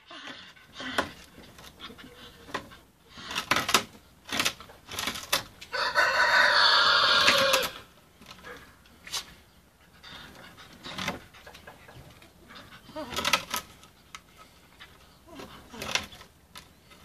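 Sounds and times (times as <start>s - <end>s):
dog gnawing wooden boards: 0.4s - 6.3s, 7.2s - 17.0s
rooster crowing: 5.7s - 7.9s.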